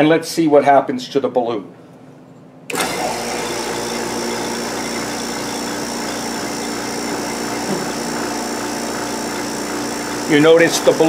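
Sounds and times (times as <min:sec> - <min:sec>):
vacuum pump humming and whining: 0:02.7 - 0:11.0.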